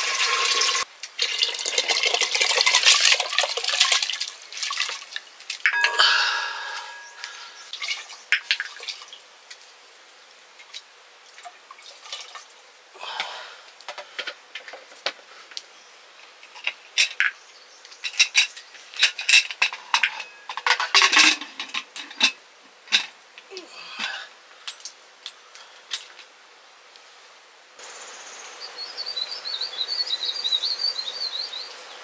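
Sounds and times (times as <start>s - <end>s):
pots and utensils clinking: 5.7s - 7.7s, 18.0s - 23.1s.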